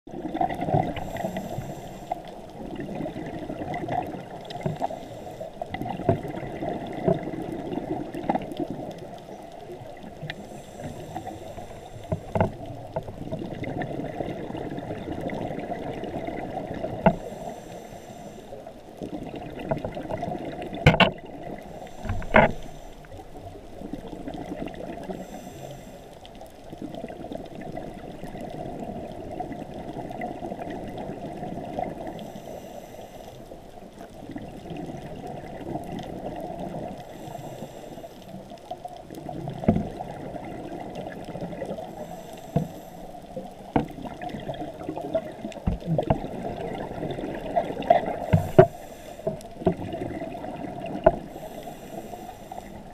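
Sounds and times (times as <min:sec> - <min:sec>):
exhaled air bubbling underwater: 0:00.1 - 0:52.9
diver regulator hiss: 0:00.9 - 0:02.3, 0:04.6 - 0:05.6, 0:10.4 - 0:12.4, 0:17.1 - 0:18.7, 0:21.7 - 0:23.1, 0:25.0 - 0:26.1, 0:32.1 - 0:33.6, 0:37.0 - 0:38.4, 0:41.8 - 0:43.2, 0:48.2 - 0:49.4, 0:51.2 - 0:52.9
sharp knocks and clicks: 0:20.8 - 0:21.2.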